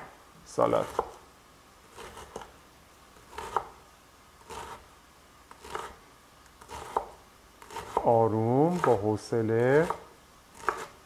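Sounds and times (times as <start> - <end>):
knife slicing cabbage on board: 0.7 - 1.2, 1.9 - 2.5, 3.2 - 3.8, 4.4 - 4.8, 5.5 - 6.0, 6.6 - 8.1, 8.7 - 9.0, 9.8 - 11.0.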